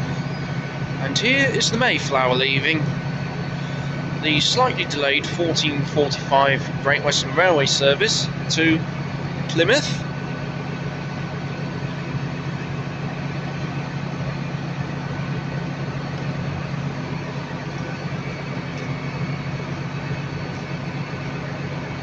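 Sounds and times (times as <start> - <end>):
train diesel engines humming: 0.0 - 22.0.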